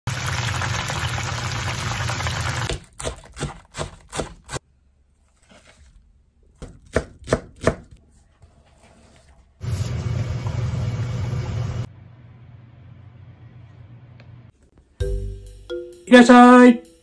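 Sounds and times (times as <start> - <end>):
chicken deep-frying in oil: 0.0 - 2.7, 9.6 - 11.9
knife chopping on cutting board: 2.7 - 4.6, 6.6 - 8.0.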